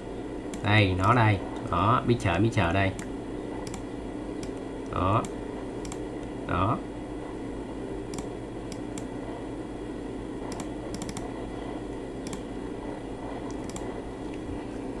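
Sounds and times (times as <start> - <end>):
steady low hum: 0.0 - 15.0
computer mouse clicks: 3.0 - 3.8, 4.4 - 6.0, 8.1 - 9.1, 10.5 - 11.3, 12.2 - 12.5, 13.4 - 14.4.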